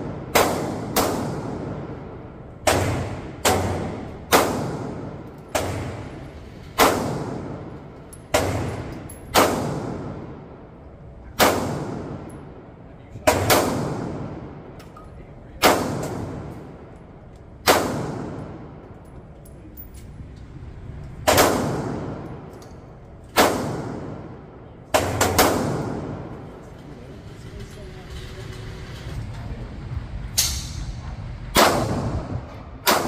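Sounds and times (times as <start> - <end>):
pistol shots echoing indoors: 0.0 - 15.0, 15.6 - 19.2, 20.6 - 26.6, 31.5 - 33.0.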